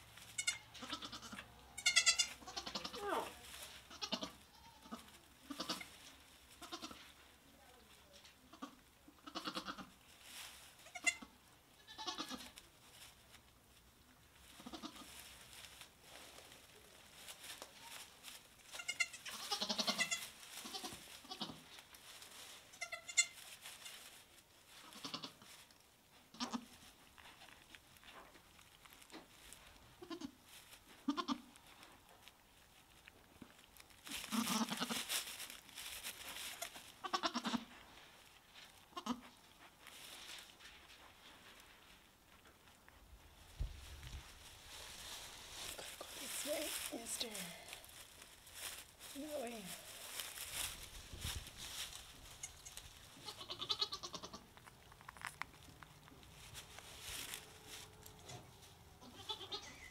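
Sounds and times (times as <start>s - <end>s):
goats bleating: 0.4s - 3.3s, 3.9s - 5.9s, 18.8s - 21.6s, 53.2s - 54.4s, 59.0s - 59.9s.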